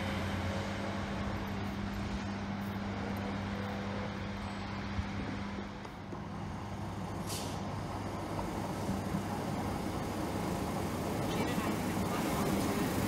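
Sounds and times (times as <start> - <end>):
diesel engine hum: 0.0 - 13.0
train wheels rumbling: 0.0 - 13.0
brake air hiss: 7.0 - 13.0.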